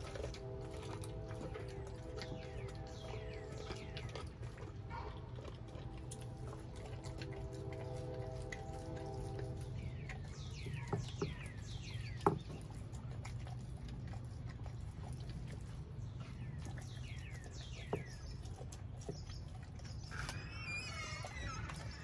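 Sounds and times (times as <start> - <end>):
steady low hum: 0.0 - 20.5
dog chewing bones cracking: 0.0 - 22.0
bird calling falling notes: 20.1 - 22.0.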